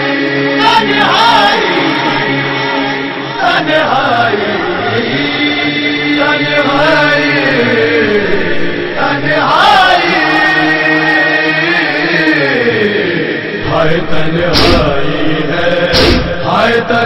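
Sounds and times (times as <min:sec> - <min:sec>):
men chanting: 0:00.0 - 0:17.0
chest-beating thumps: 0:14.5 - 0:15.0, 0:15.9 - 0:16.4.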